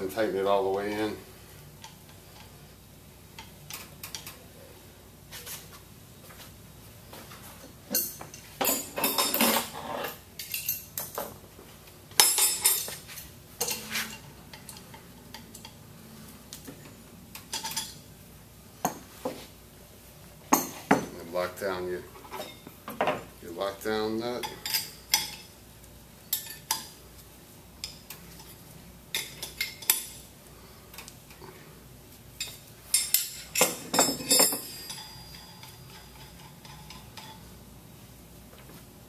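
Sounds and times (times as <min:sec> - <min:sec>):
metal tools clinking and clattering: 0:13.6 - 0:15.7, 0:32.4 - 0:37.4.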